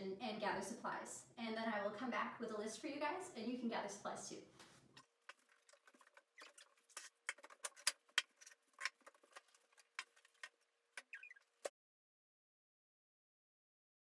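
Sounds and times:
short squeak: 11.0s - 11.7s.

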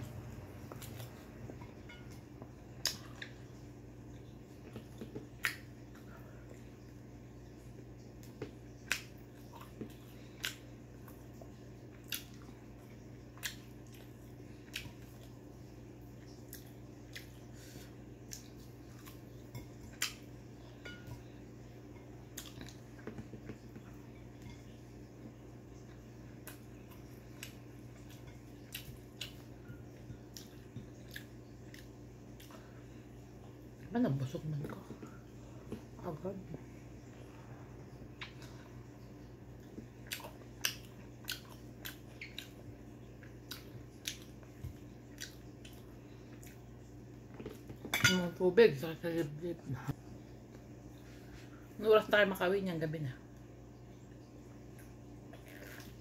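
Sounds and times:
low steady hum: 0.0s - 56.0s
person chewing food: 0.4s - 3.5s, 7.6s - 15.4s, 16.1s - 21.4s, 22.0s - 24.8s, 25.8s - 32.8s, 37.4s - 47.9s, 54.7s - 56.0s.

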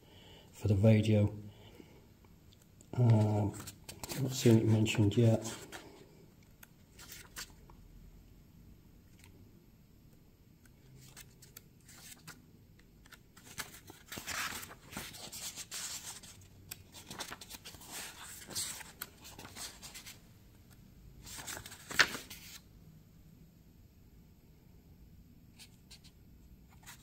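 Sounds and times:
paper pages rustling: 3.0s - 4.8s, 5.4s - 6.0s, 6.9s - 7.6s, 10.9s - 12.4s, 13.0s - 20.2s, 21.2s - 22.6s, 26.7s - 27.0s.

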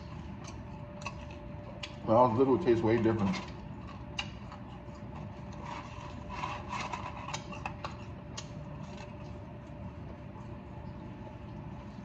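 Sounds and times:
chewing fries: 0.0s - 12.0s
low room hum: 0.0s - 12.0s.

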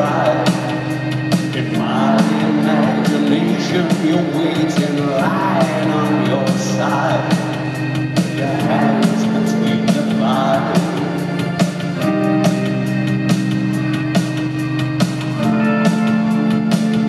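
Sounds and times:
person singing: 0.0s - 12.6s
live rock band playing: 0.0s - 17.0s
slow steady drum beat: 0.0s - 17.0s.

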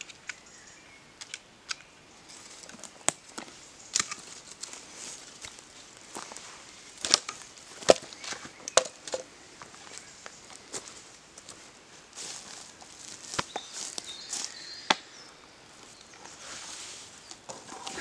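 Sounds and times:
twigs crackling in fire: 1.2s - 9.2s.

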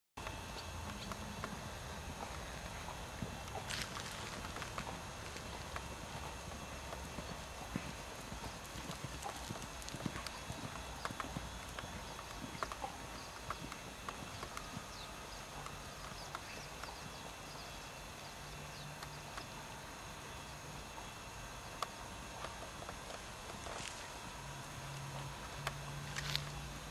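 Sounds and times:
horse hoofbeats cantering on dirt: 0.2s - 26.9s.

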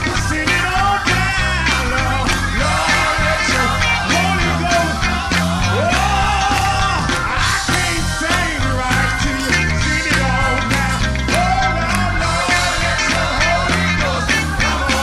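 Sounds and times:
band with keyboard bass and drums: 0.0s - 15.0s
choir singing: 0.0s - 15.0s
man singing into microphone: 0.0s - 15.0s.

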